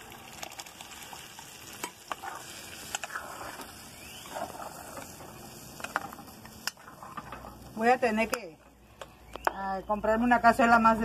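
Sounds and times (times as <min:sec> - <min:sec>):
sauce sizzling in a hot pot: 0:00.0 - 0:08.3.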